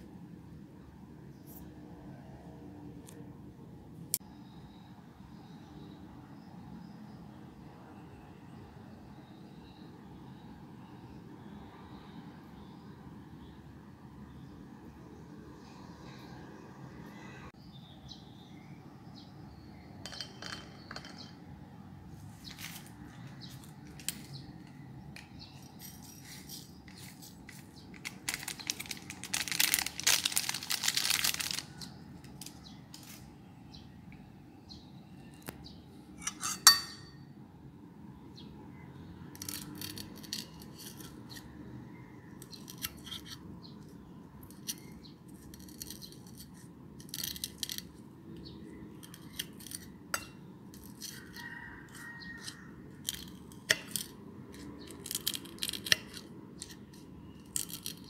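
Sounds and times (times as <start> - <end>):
powder pouring from packet: 27.2 - 32.4
metal spoon scraping glass plate: 36.2 - 37.2, 39.4 - 41.5, 45.4 - 48.0, 49.0 - 58.0.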